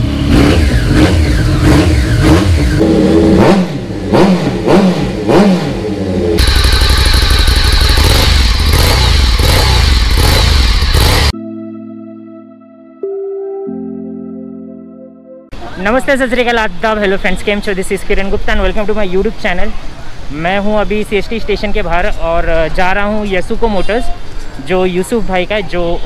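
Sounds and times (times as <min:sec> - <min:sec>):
motorcycle engine running steadily: 0:00.0 - 0:11.3
motorcycle engine revving: 0:00.0 - 0:11.4
soft synthesizer music: 0:11.3 - 0:15.9.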